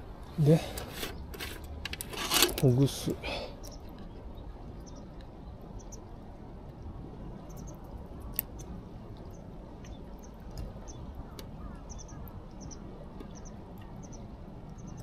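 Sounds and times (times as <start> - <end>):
low outdoor rumble: 0.0 - 15.0
utensil scraping in pot: 0.6 - 2.6.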